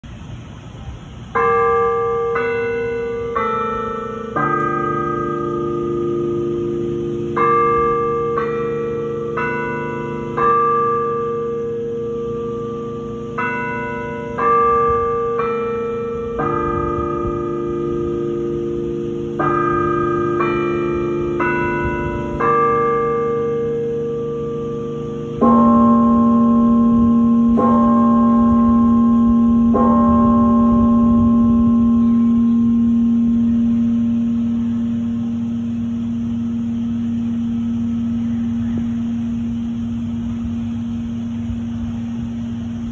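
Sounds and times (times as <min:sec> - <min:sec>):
bell tolling hour strikes: 0:01.3 - 0:42.9
bell chime melody: 0:01.4 - 0:41.1.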